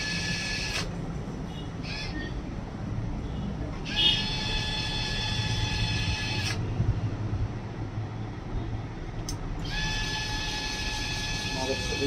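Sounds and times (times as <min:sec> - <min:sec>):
electric screwdriver whining: 0:00.0 - 0:00.9, 0:03.9 - 0:06.6, 0:09.6 - 0:12.0.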